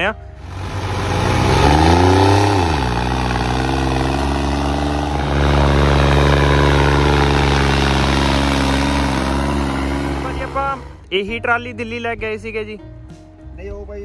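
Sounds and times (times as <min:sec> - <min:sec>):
tractor diesel engine under load: 0:00.0 - 0:11.1.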